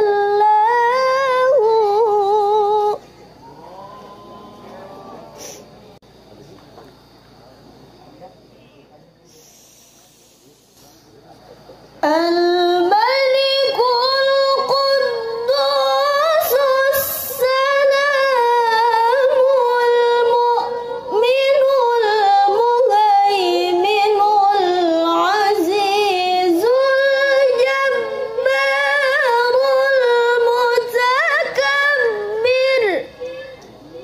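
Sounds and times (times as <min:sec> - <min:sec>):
woman reciting melodically: 0:00.0 - 0:03.1, 0:12.0 - 0:33.8.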